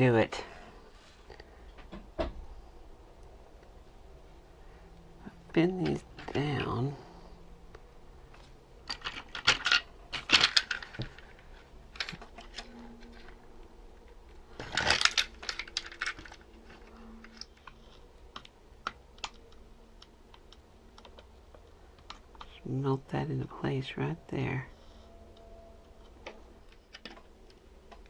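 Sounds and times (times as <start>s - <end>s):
plastic toy set on bench: 5.5s - 22.6s, 26.0s - 28.0s
small plastic parts clicking and clattering: 8.3s - 13.4s, 14.0s - 19.6s, 26.2s - 28.0s.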